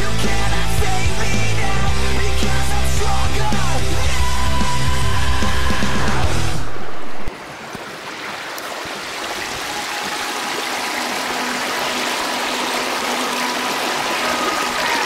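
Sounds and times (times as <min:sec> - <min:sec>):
creek splashing over rocks: 0:07.3 - 0:15.0.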